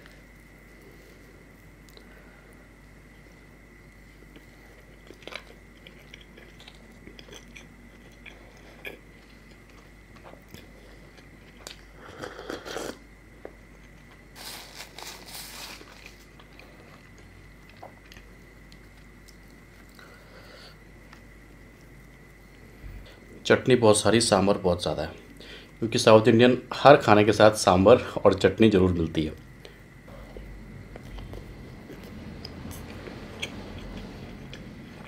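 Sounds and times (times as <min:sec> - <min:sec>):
person chewing: 0:04.2 - 0:20.0, 0:29.6 - 0:35.0.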